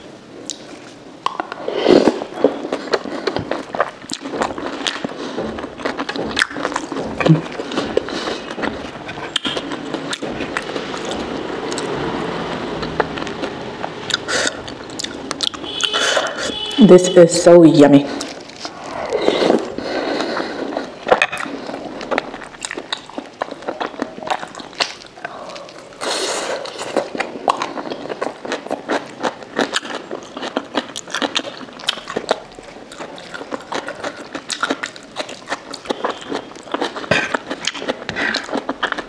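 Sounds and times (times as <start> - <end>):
person slurping soup: 1.6 - 3.4, 18.2 - 22.3
chewing with wet mouth clicks: 2.4 - 11.8, 20.2 - 39.0.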